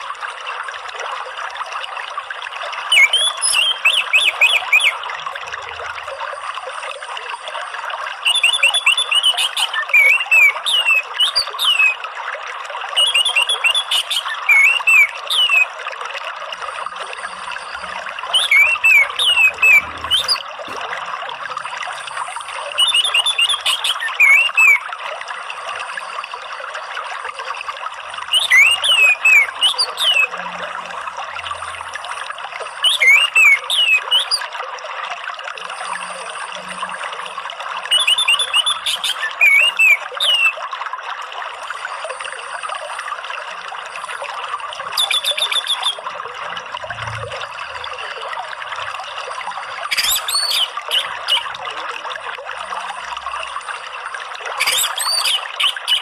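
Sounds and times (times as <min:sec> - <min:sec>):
trickle of running water: 0:00.0 - 0:56.0
thrush singing whistled notes: 0:02.8 - 0:05.9, 0:08.2 - 0:12.1, 0:13.0 - 0:15.8, 0:16.9 - 0:20.8, 0:21.9 - 0:24.9, 0:28.2 - 0:30.6, 0:31.5 - 0:34.5, 0:37.9 - 0:40.6, 0:44.9 - 0:47.9, 0:49.9 - 0:51.6, 0:54.6 - 0:56.0.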